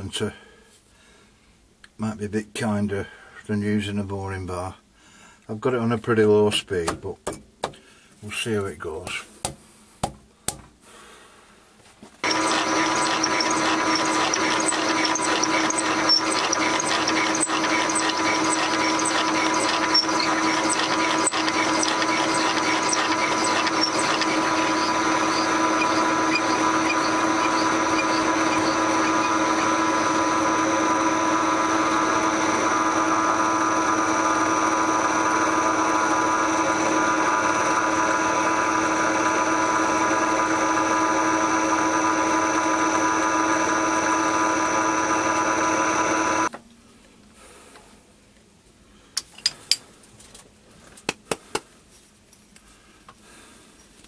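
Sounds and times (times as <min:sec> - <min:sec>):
drill boring cast iron: 0:12.2 - 0:46.5
metal lathe motor whining: 0:12.2 - 0:46.5.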